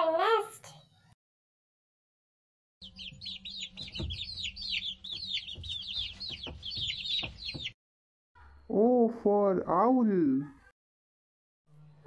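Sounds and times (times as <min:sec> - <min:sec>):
baby chicks peeping: 0:02.8 - 0:07.8
soft knocks: 0:03.8 - 0:07.8.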